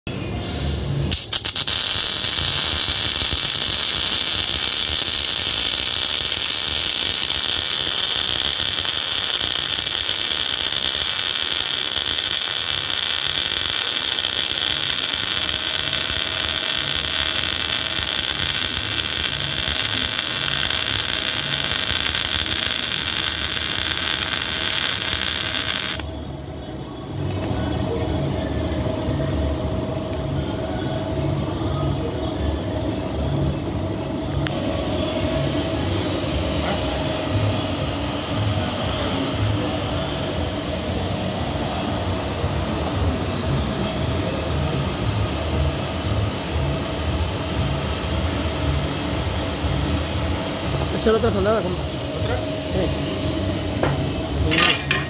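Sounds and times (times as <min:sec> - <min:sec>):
machine running with faint hum: 0:00.1 - 0:55.0
welding arc hissing: 0:00.4 - 0:26.1.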